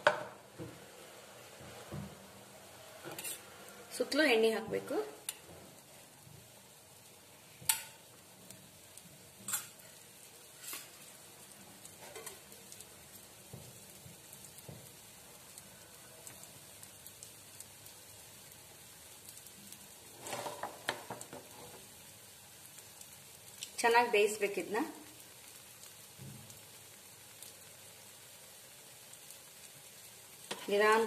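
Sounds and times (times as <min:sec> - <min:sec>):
batter sizzling in oil: 0:00.0 - 0:31.0.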